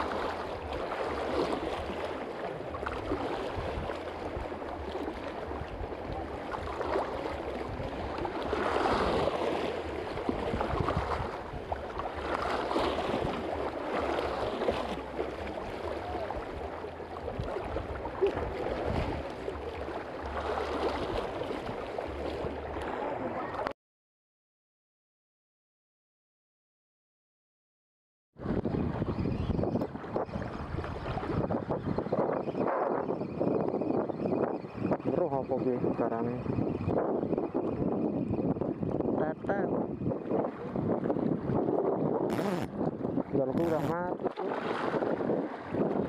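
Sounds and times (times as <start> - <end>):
waves lapping over rocks: 0.0 - 23.7, 39.2 - 46.0.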